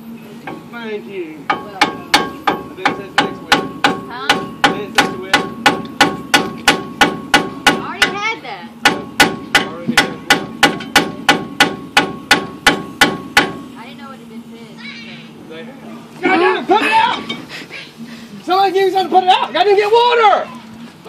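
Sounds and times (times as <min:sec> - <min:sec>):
hammer striking metal: 0:01.5 - 0:08.2, 0:08.8 - 0:13.7.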